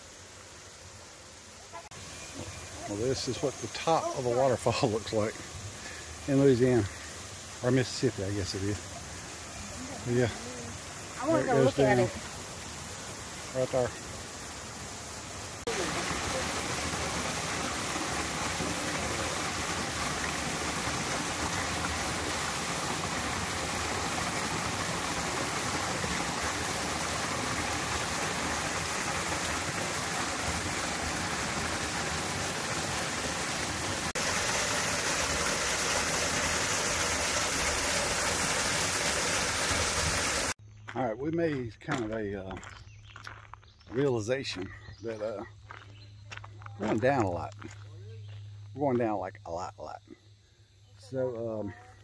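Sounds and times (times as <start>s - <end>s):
water rushing over waterfall: 1.8s - 40.6s.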